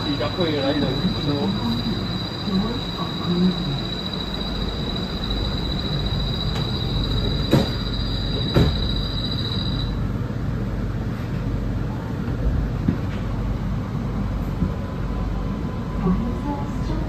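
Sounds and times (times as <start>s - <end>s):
high steady whine: 0.0s - 10.0s
train rumbling on guideway: 0.0s - 17.0s.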